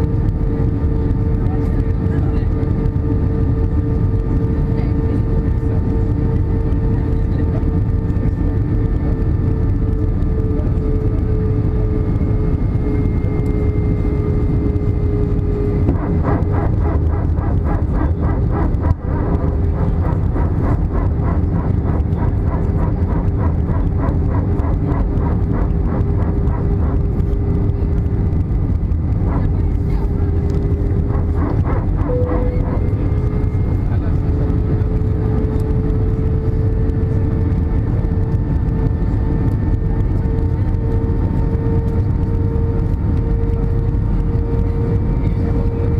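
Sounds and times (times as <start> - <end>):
airflow rush and engine drone: 0.0 - 45.9
fast even pulsing: 0.0 - 45.9
held tone: 31.9 - 33.9.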